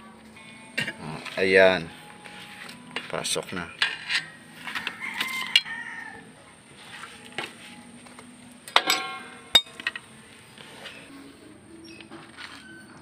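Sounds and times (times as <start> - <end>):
rooster crowing: 4.6 - 6.3
sharp metallic clank: 8.7 - 10.0.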